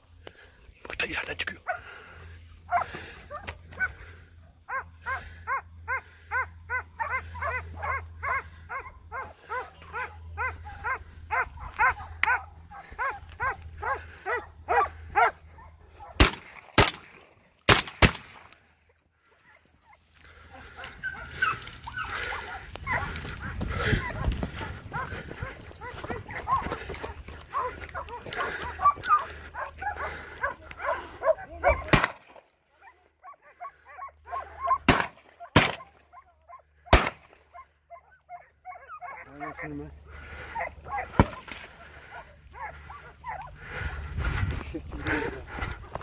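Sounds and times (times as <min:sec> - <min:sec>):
dog barking high yelps: 0:02.7 - 0:04.0, 0:04.7 - 0:16.2, 0:20.6 - 0:26.8, 0:27.5 - 0:32.0, 0:32.8 - 0:36.9, 0:37.5 - 0:43.6
sharp cracks: 0:16.2 - 0:18.7, 0:31.9 - 0:32.4, 0:34.8 - 0:35.9, 0:36.9 - 0:37.4, 0:41.1 - 0:41.8.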